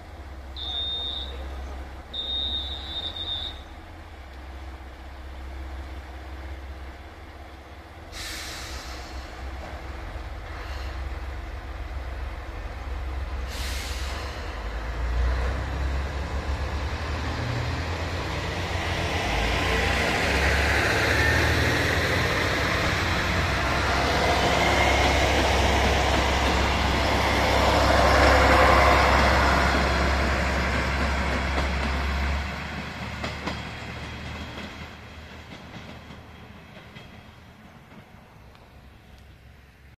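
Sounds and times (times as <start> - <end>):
diesel train engine drone: 0.0 - 39.9
hiss of air: 8.1 - 9.6, 13.3 - 14.9.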